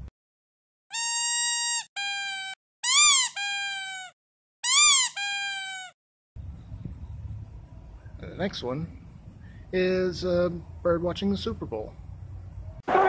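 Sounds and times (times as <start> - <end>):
cat squeaky cries: 0.9 - 6.0.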